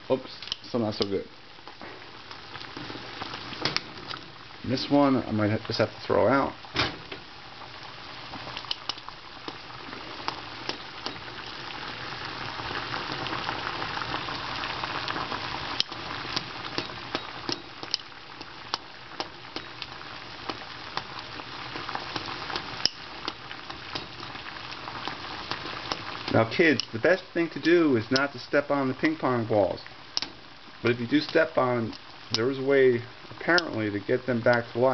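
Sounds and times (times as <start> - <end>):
water boiling in saucepan: 0.0 - 34.9
metal tongs tapping pan: 8.6 - 9.6, 10.7 - 11.3, 16.7 - 19.9, 22.8 - 24.3, 26.7 - 27.0.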